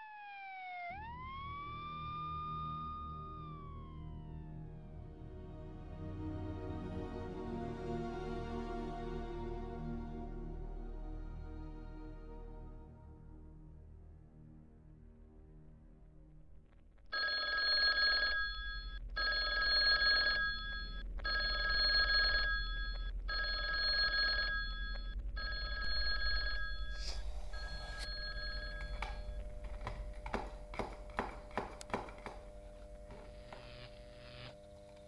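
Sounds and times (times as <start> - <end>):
low steady hum: 10.0 - 35.0
payphone ringing: 17.1 - 33.8.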